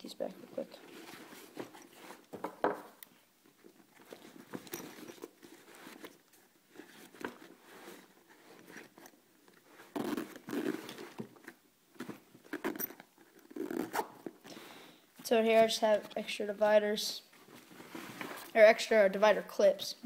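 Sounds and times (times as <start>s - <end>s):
zipper closing: 9.8s - 11.2s, 12.0s - 14.4s.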